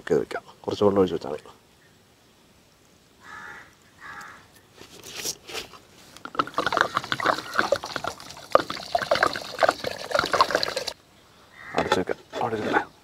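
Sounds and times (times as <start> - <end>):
water pouring into pot: 6.3 - 11.0.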